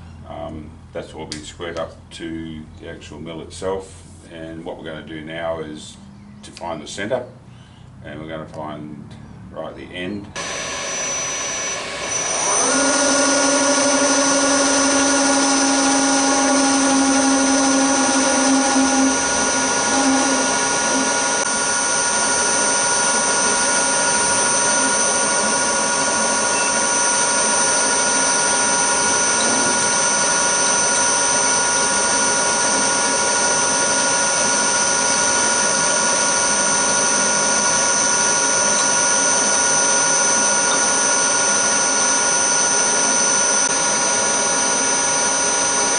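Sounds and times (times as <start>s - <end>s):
low hum: 10.4s - 41.6s
milling machine spindle whine: 10.4s - 45.9s.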